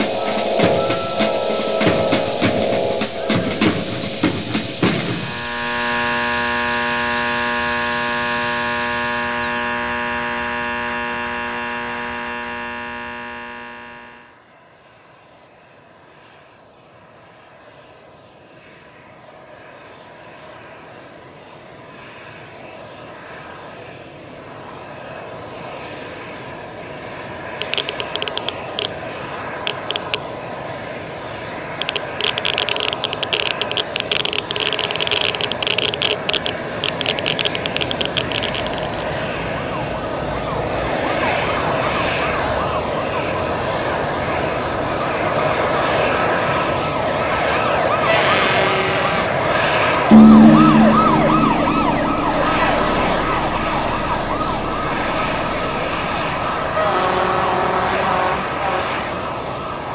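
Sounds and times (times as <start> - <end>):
rushing hissing ambience: 0.0 - 9.9, 31.8 - 39.1
crackling bursts: 0.0 - 10.2, 27.6 - 29.0, 29.6 - 30.3, 31.8 - 39.2, 50.1 - 57.0
buzzing chord with high whine: 0.0 - 14.4, 27.6 - 28.9, 29.7 - 30.2, 31.8 - 39.1, 50.1 - 57.3.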